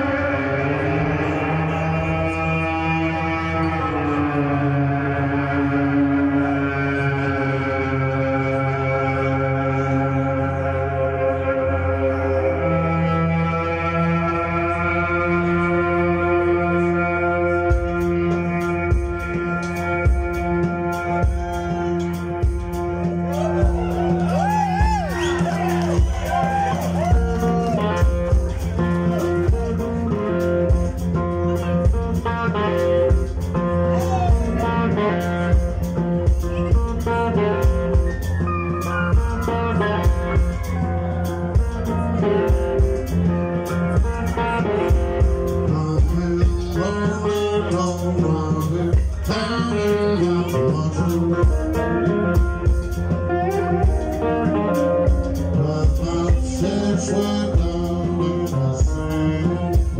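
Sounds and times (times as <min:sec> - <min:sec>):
bass guitar: 0:00.0 - 0:59.9
electric guitar: 0:00.0 - 0:59.9
drum kit steady beat: 0:17.7 - 0:59.9.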